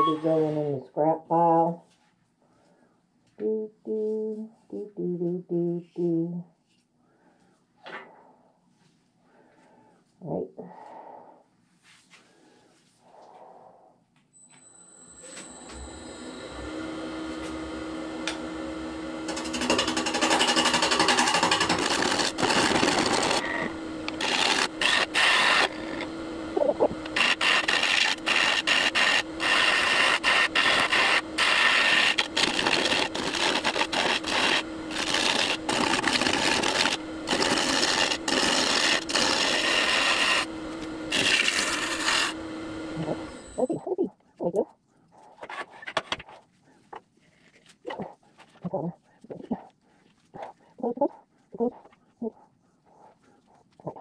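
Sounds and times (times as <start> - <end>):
lathe motor humming: 15.1 - 43.7
gouge cutting wood rough: 19.2 - 43.4.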